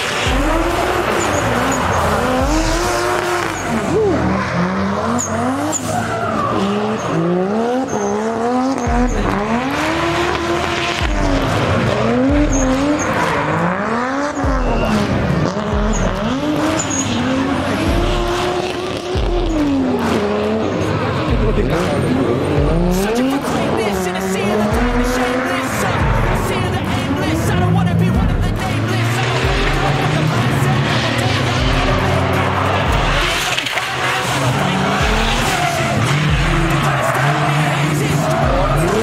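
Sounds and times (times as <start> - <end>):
car engines revving: 0.0 - 39.0
tyres squealing: 0.1 - 9.9, 11.2 - 39.0.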